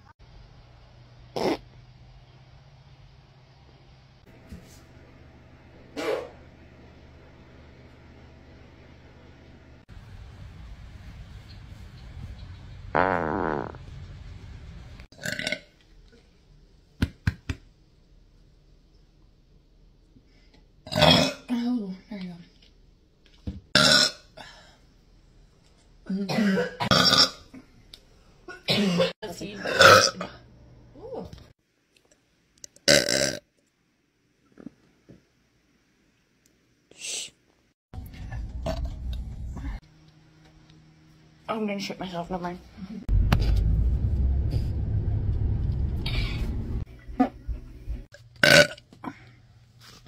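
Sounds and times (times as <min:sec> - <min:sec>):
rumbling fart: 0:12.9 - 0:14.2
woman burping: 0:26.2 - 0:27.6, 0:28.5 - 0:30.3, 0:48.4 - 0:49.2.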